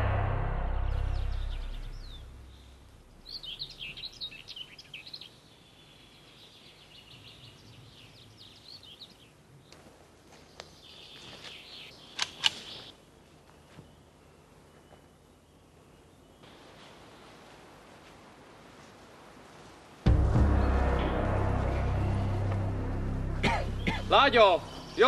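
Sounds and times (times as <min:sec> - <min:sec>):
songbird chirping: 0:00.0 - 0:17.8, 0:20.1 - 0:25.0
sharp cracks: 0:12.1 - 0:12.8.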